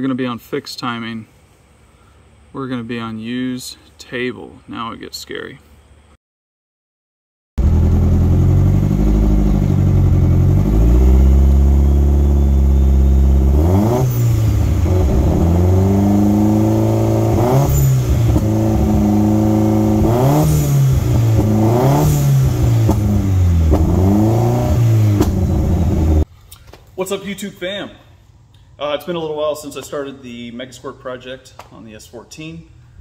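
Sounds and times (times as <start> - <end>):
car engine idling and revving: 7.6 - 26.2.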